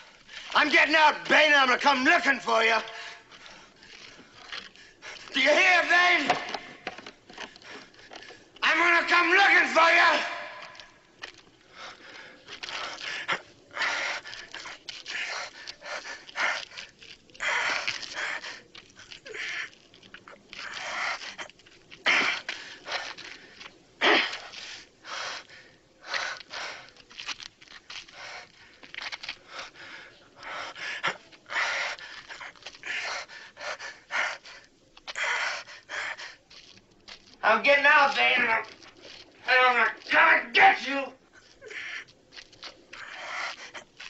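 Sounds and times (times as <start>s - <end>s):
man panting: 11.7s - 19.7s, 28.0s - 36.7s, 42.9s - 44.0s.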